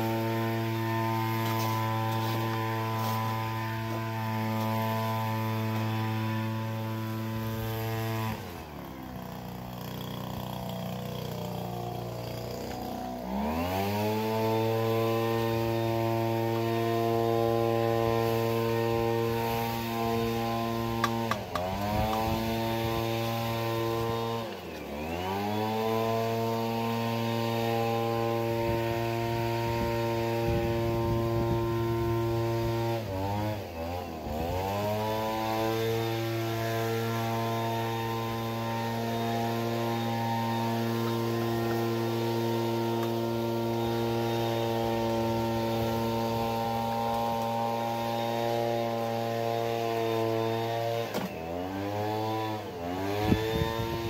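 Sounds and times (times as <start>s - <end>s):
motor humming: 0.0s - 32.7s.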